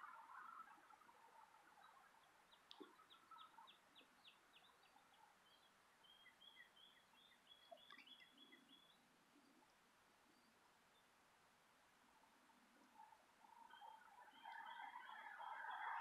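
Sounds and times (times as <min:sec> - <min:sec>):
faint songbird whistled notes: 0:00.0 - 0:09.0, 0:13.0 - 0:16.0.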